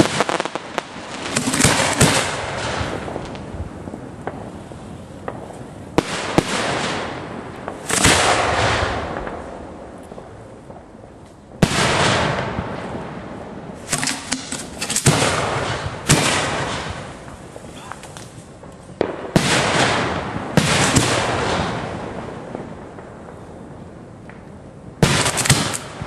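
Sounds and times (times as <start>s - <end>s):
fireworks booming: 0.0s - 26.0s.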